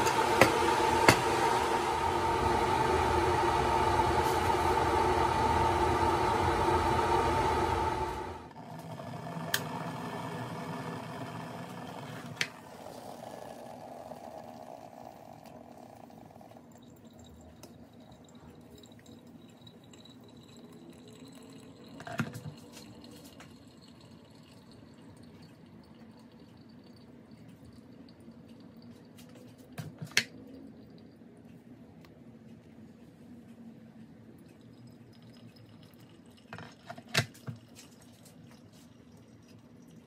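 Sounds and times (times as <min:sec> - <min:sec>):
water trickling onto coffee: 0:12.4 - 0:31.3, 0:34.3 - 0:40.0.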